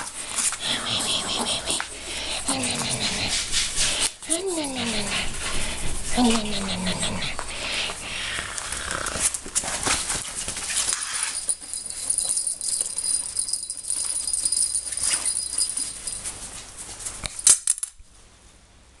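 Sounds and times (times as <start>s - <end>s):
small bell jingling: 10.7s - 16.7s.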